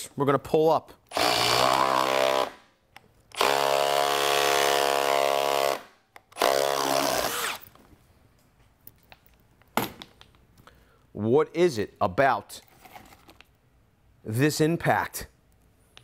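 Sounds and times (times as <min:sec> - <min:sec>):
impact driver running: 0:03.3 - 0:05.8.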